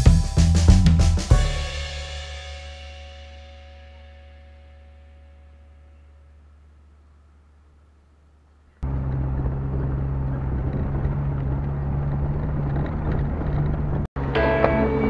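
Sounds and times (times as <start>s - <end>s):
low engine drone: 2.8s - 15.0s
wind: 5.2s - 15.0s
tyres on gravel: 8.7s - 15.0s.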